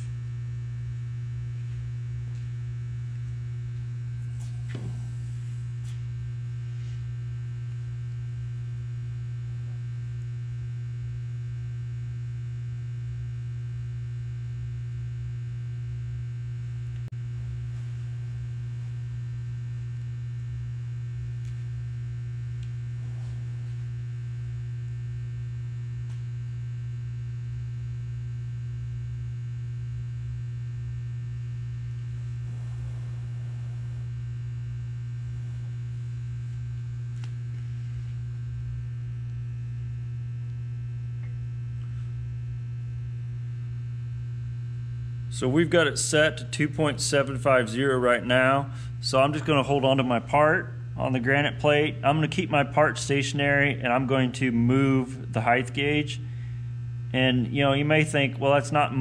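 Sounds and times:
low electrical hum: 0:00.0 - 0:59.0.

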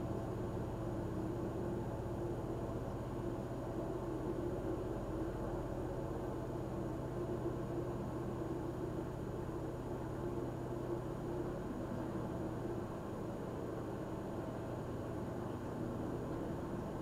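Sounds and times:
diesel engine low hum: 0:00.0 - 0:17.0.

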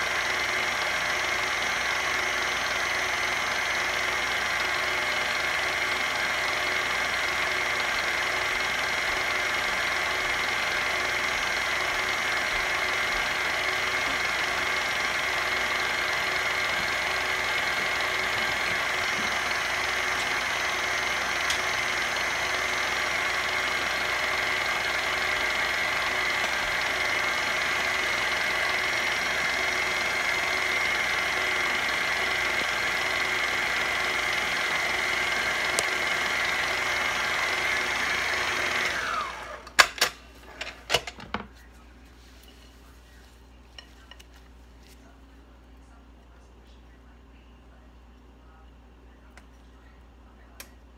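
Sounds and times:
electric mixer whirring: 0:00.0 - 0:39.8.

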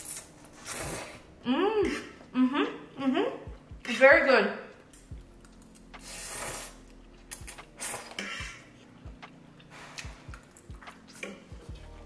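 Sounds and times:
person eating: 0:05.0 - 0:11.7.

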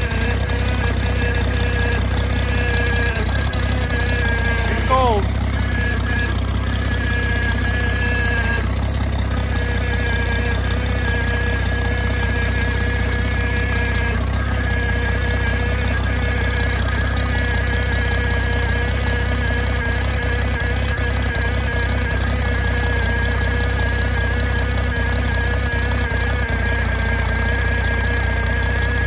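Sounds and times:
tractor engine idling: 0:00.0 - 0:29.0.

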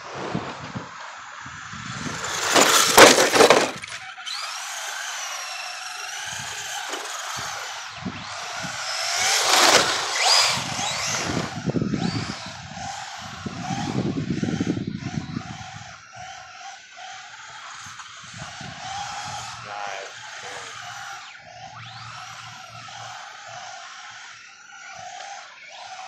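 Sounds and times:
electric motor whine: 0:01.1 - 0:26.0
harsh scraping burst: 0:01.8 - 0:04.6, 0:06.4 - 0:07.8
tyres scrubbing on asphalt: 0:01.9 - 0:03.9, 0:06.6 - 0:07.7, 0:08.8 - 0:11.5.

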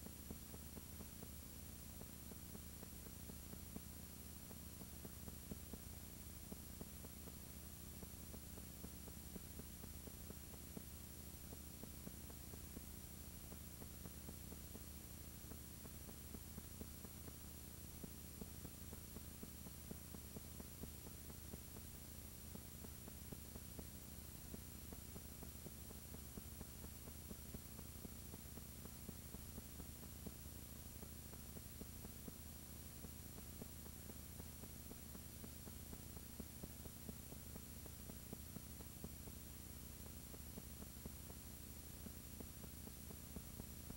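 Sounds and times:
faint electrical hum with hiss: 0:00.0 - 0:43.9.

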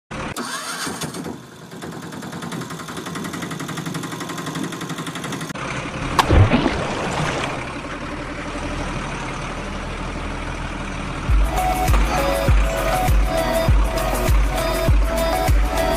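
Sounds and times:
toy truck engine running: 0:00.1 - 0:06.1, 0:11.0 - 0:15.9
loud splash into water: 0:06.2 - 0:07.8
water churning: 0:06.2 - 0:07.8.

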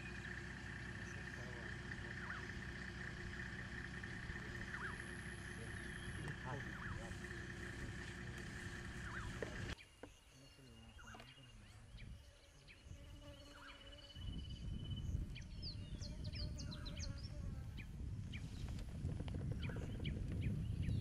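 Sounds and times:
low rumbling noise: 0:00.0 - 0:09.8
birds chirping and trilling: 0:00.0 - 0:21.0.

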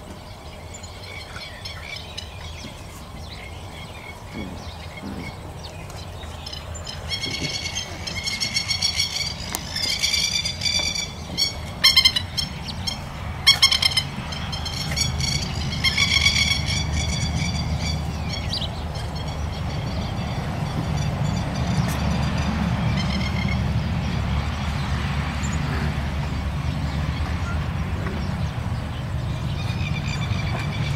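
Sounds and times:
high-pitched pulsed animal calls: 0:06.4 - 0:23.8.

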